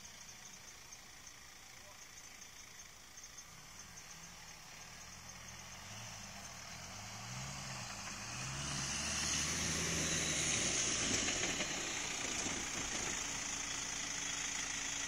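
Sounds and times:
off-road vehicle engine revving: 3.4s - 15.0s.

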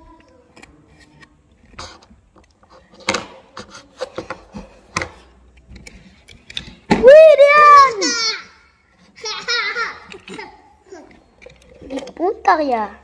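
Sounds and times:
plastic toy clicks and knocks: 11.0s - 12.5s.

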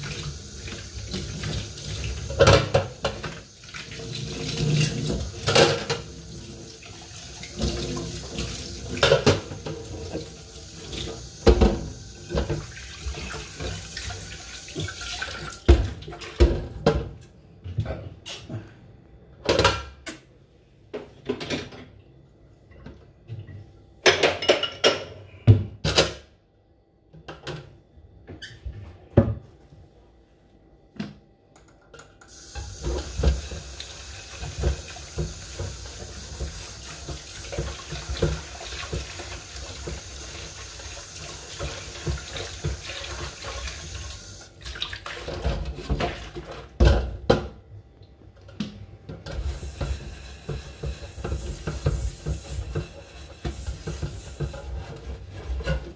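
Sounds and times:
dishes clinking and clattering: 4.1s - 6.2s, 7.6s - 10.4s, 24.0s - 25.3s
tap running into sink: 32.3s - 40.5s.

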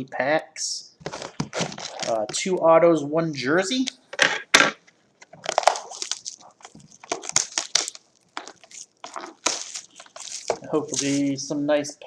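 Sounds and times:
plastic shrink wrap crinkling: 1.0s - 2.4s, 5.0s - 12.0s.

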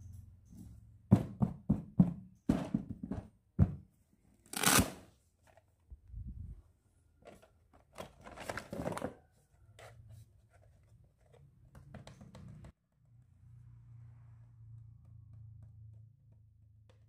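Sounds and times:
plastic toys clattering: 7.2s - 9.3s.

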